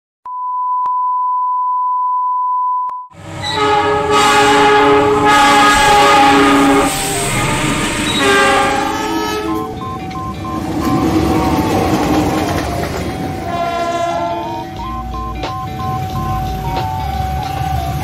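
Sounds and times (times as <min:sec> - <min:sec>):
locomotive horn chord: 0:03.2 - 0:09.8, 0:13.3 - 0:14.9
engine and rail noise: 0:03.2 - 0:18.0
steady test tone: 0:06.0 - 0:12.0.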